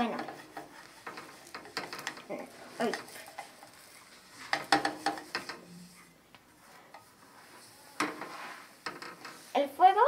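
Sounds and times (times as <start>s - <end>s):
spatula scraping frying pan: 0.0s - 6.1s, 7.5s - 9.5s.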